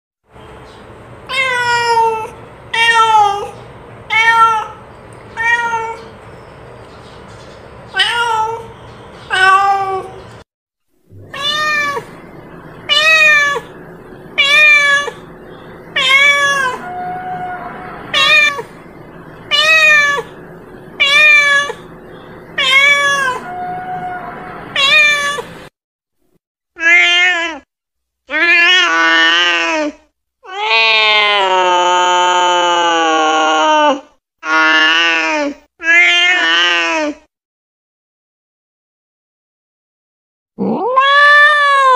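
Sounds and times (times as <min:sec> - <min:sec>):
cat meowing: 0:01.3 - 0:06.1, 0:07.9 - 0:08.7, 0:09.3 - 0:10.2, 0:11.2 - 0:20.4, 0:21.0 - 0:21.9, 0:22.6 - 0:25.7, 0:35.8 - 0:37.2, 0:40.6 - 0:41.9.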